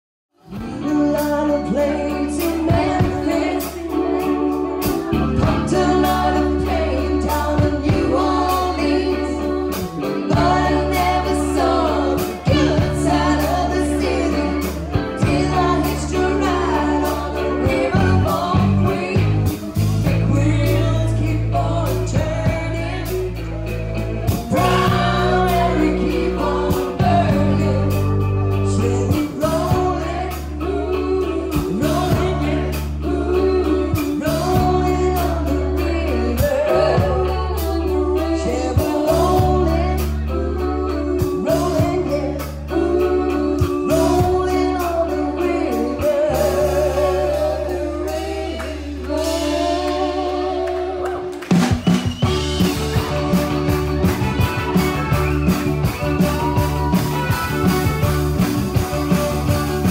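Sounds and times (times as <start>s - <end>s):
live band playing: 0.4s - 59.9s
woman singing: 0.5s - 51.6s.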